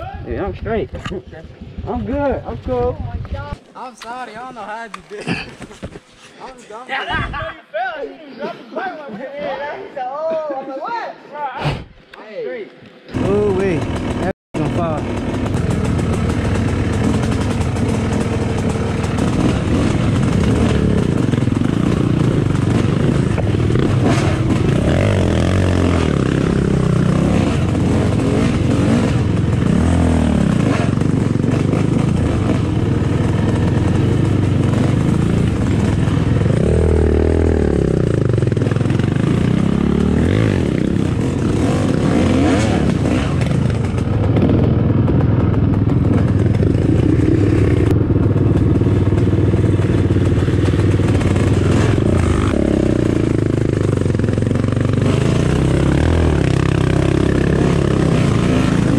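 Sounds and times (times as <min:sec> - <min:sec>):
dirt bike engine revving: 0:13.1 - 0:58.9.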